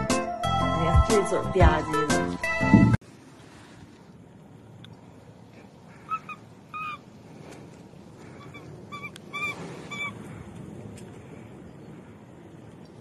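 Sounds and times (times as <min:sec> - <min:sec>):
low steady background noise: 0:03.0 - 0:13.0
baby monkey squeaking calls: 0:06.1 - 0:07.0, 0:08.4 - 0:10.2.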